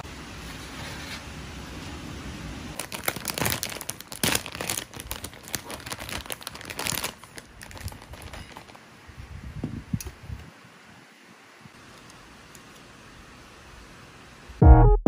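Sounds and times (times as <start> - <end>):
plastic bag crinkling: 2.8 - 8.8.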